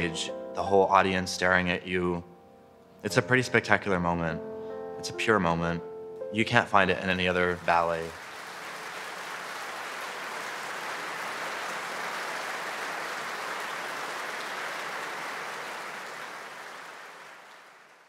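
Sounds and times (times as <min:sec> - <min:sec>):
audience applauding: 0:07.3 - 0:18.0.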